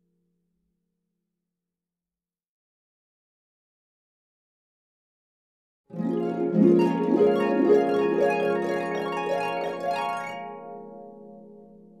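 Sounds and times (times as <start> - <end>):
harp plucked notes: 5.9 - 11.8.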